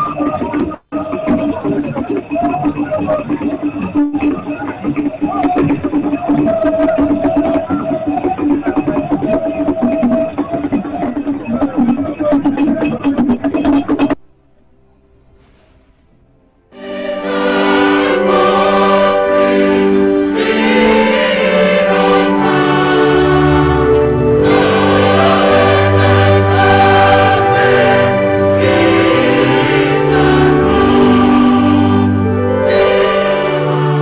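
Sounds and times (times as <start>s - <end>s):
choir singing: 0.0s - 14.2s, 16.8s - 34.0s
string orchestra: 16.8s - 34.0s.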